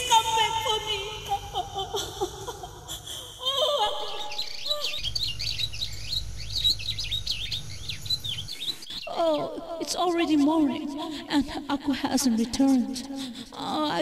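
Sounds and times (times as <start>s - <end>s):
woman singing a lament: 0.0s - 5.0s, 9.1s - 14.0s
songbirds chirping: 3.9s - 10.4s.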